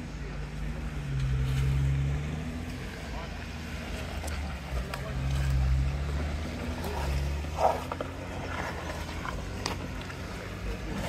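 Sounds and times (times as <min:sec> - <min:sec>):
engine rumbling at low revs: 0:00.0 - 0:11.0.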